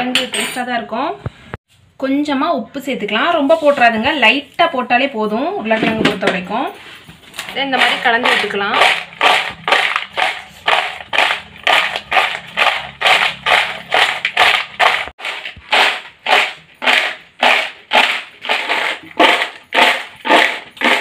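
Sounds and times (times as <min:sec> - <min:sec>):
chips rattling in plastic bowl: 0:07.8 - 0:21.0.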